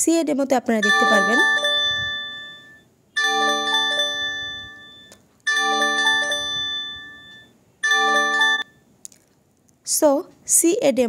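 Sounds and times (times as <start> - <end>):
phone alarm bell-like chimes: 0.8 - 8.8.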